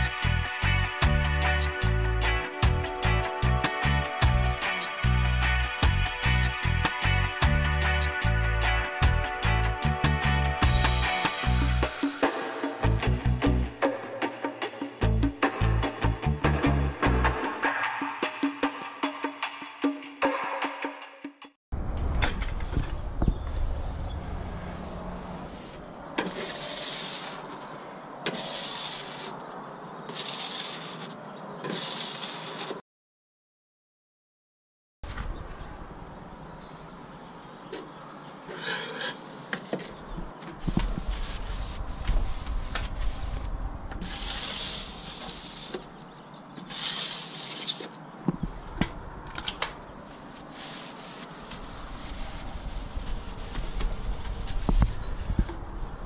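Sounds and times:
washer rubbing wet window glass: 25.5 - 32.8, 44.0 - 46.0, 46.6 - 48.0, 50.1 - 55.5.

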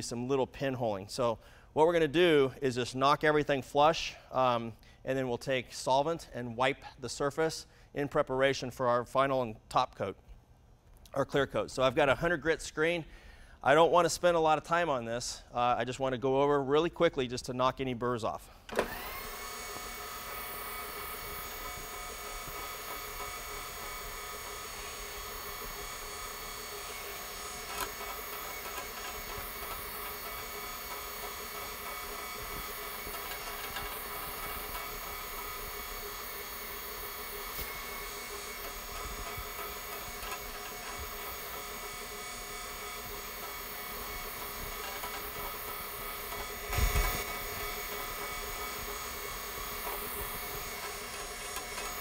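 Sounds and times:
floor buffer motor whine: 18.6 - 52.0.

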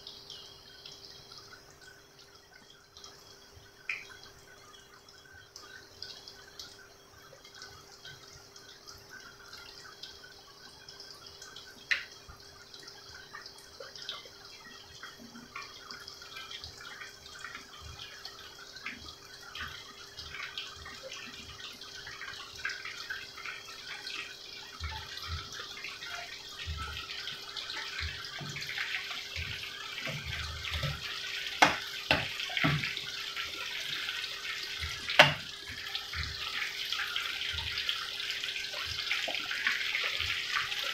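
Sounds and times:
food sizzling in hot oil: 23.6 - 40.9
wooden spatula knocking pan: 31.6 - 33.0, 35.1 - 35.5.

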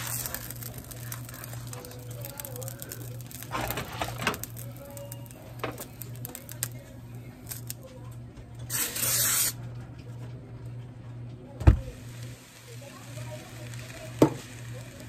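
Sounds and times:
cooking oil spray hissing: 0.0 - 7.8, 8.7 - 9.6, 11.8 - 15.0.

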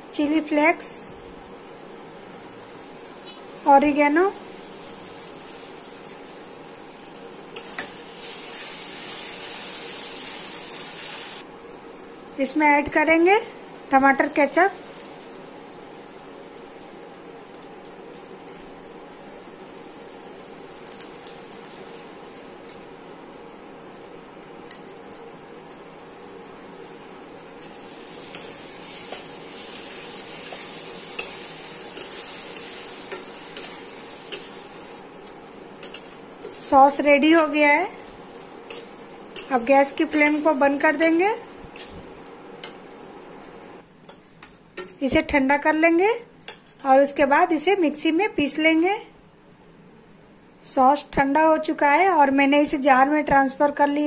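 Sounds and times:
sauce sizzling in a pan: 1.5 - 12.3, 13.5 - 43.8.

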